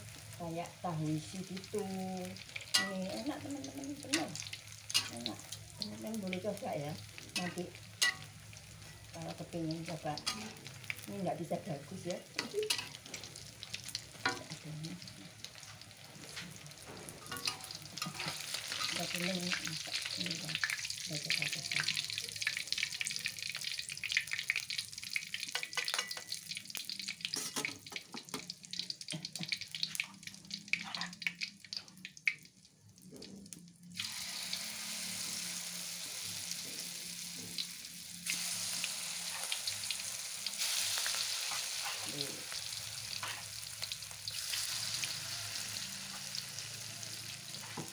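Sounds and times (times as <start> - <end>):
batter sizzling in hot oil: 0.0 - 47.9
metal spatula scraping a wok: 7.4 - 9.1, 10.2 - 10.7, 17.0 - 19.2, 27.3 - 27.8, 41.1 - 42.1, 43.1 - 43.6.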